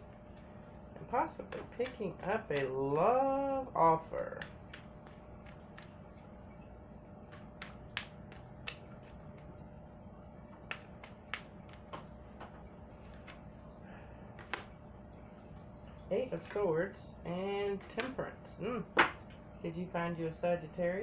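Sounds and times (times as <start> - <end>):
cards being shuffled: 1.2 - 6.4, 7.2 - 9.8, 10.6 - 13.4.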